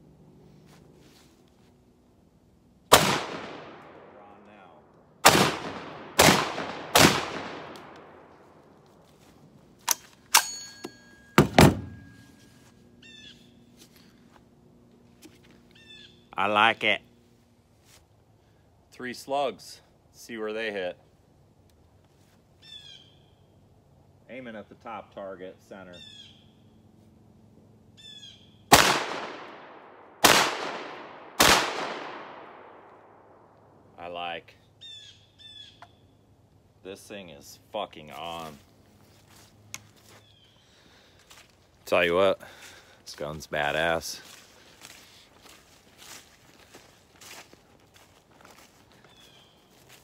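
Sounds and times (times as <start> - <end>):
shotgun blast: 2.9 - 4.2, 5.2 - 8.2, 28.7 - 32.8
shotgun action metallic clicks: 9.8 - 10.9.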